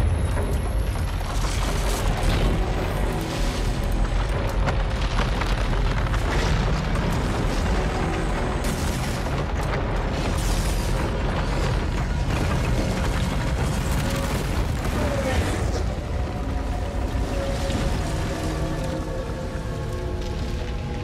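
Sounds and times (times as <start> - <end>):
crackling: 0.3 - 21.0
background music: 6.0 - 21.0.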